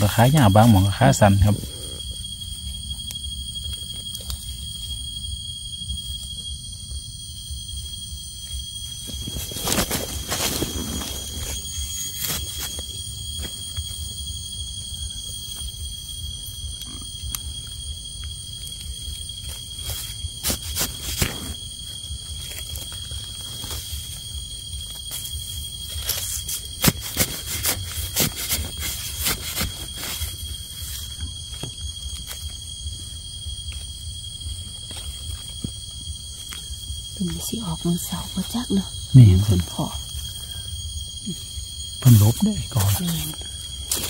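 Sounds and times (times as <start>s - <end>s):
high insect drone: 0.0s - 44.0s
leaves and twigs crackling underfoot: 8.2s - 15.7s, 18.2s - 38.4s, 41.7s - 44.0s.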